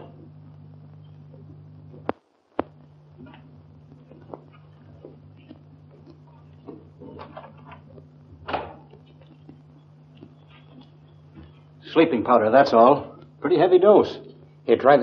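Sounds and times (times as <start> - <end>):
film soundtrack hum and hiss: 0.0 - 15.0.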